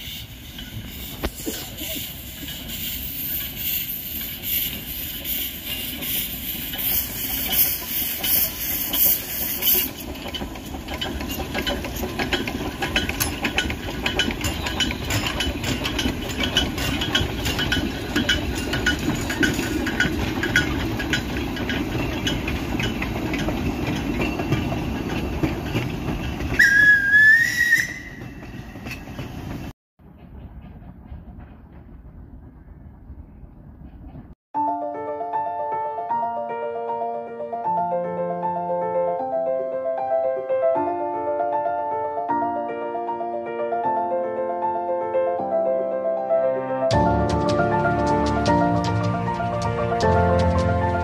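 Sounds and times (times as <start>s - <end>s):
steam hissing: 0.0s - 10.8s
locomotive clattering: 0.0s - 34.4s, 46.9s - 51.0s
steam whistle blast: 26.6s - 28.3s.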